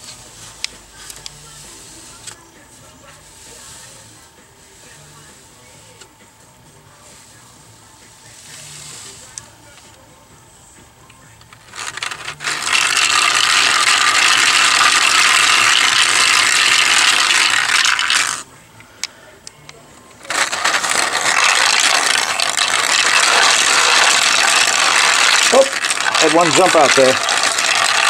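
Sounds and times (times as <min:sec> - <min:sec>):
balls clattering through marble maze: 0:11.7 - 0:18.4, 0:20.3 - 0:28.0.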